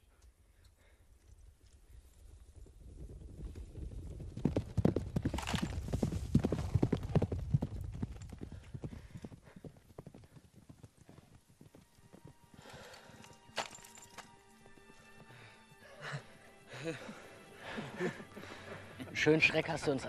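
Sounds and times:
horse hoofbeats galloping: 0:01.3 - 0:15.6.

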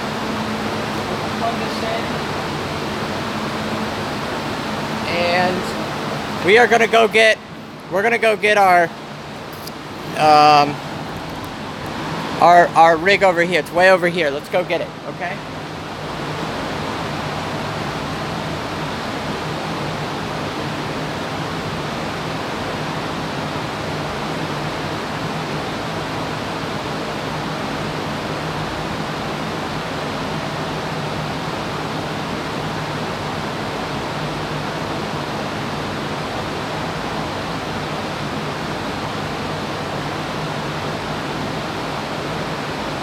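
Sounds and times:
low hum: 0:00.0 - 0:14.4
cooling fans whirring: 0:00.0 - 0:43.0.

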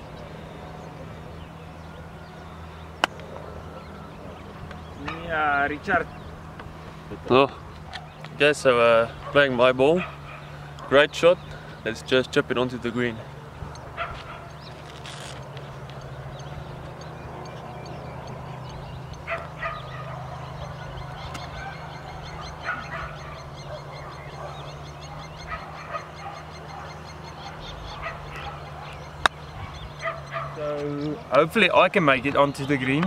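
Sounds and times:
steady low hum: 0:00.0 - 0:32.6
geese honking: 0:00.0 - 0:33.0
golf club striking ball: 0:02.9 - 0:03.3, 0:29.2 - 0:29.5.

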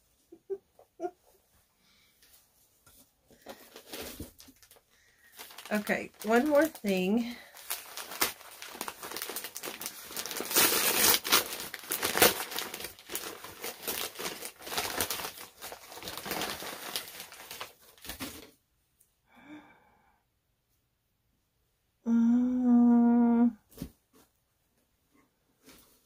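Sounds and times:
wrapping paper crinkling and tearing: 0:03.4 - 0:18.5.

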